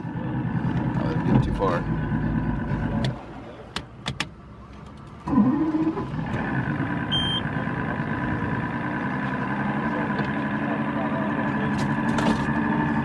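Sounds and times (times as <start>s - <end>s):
outboard motor running: 0.0s - 3.4s, 5.2s - 13.0s
high beep: 7.1s - 7.4s.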